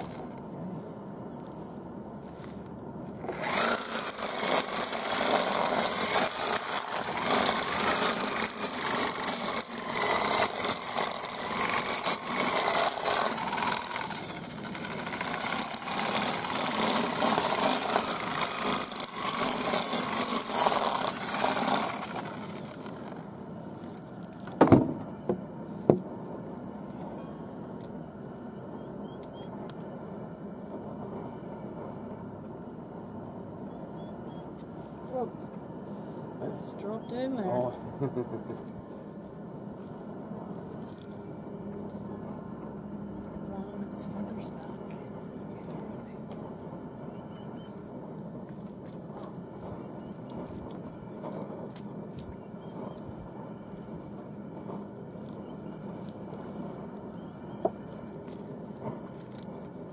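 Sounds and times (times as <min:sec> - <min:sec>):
chicken plucker motor rattling: 0:00.0 - 0:00.4, 0:03.2 - 0:24.8
sharp knocks: 0:24.6 - 0:25.1.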